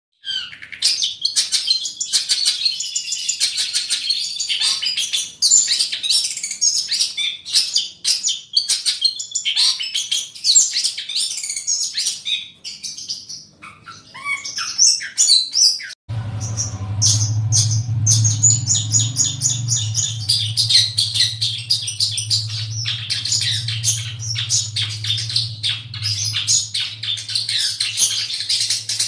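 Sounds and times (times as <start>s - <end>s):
bird singing high chirps and trills: 0.2s - 29.0s.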